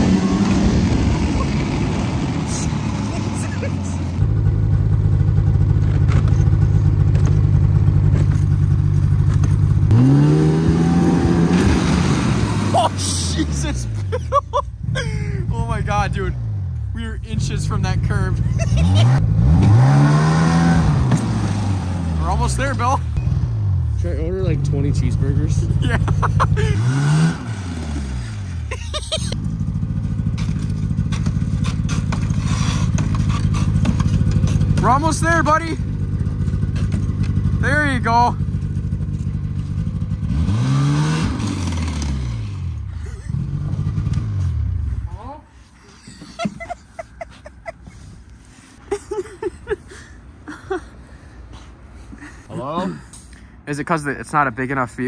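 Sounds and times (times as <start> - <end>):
snowmobile engine slowing and idling: 0.0 - 53.0
snowmobile engine idling: 0.8 - 9.9, 24.0 - 26.8, 28.7 - 40.2.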